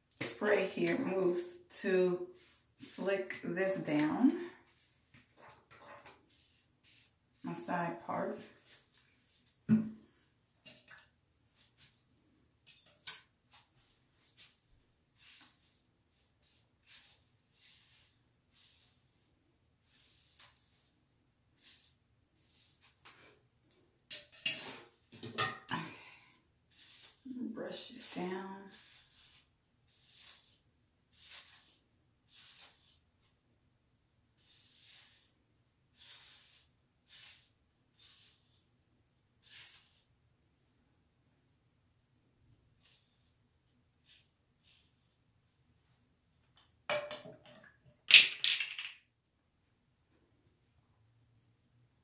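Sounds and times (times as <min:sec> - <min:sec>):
comb swishing through hair: 0:02.3 - 0:09.6, 0:11.5 - 0:12.0, 0:13.5 - 0:21.0, 0:21.6 - 0:23.2, 0:26.7 - 0:33.4, 0:34.4 - 0:35.4, 0:36.0 - 0:38.7, 0:39.4 - 0:40.1, 0:42.8 - 0:43.4, 0:44.0 - 0:45.2.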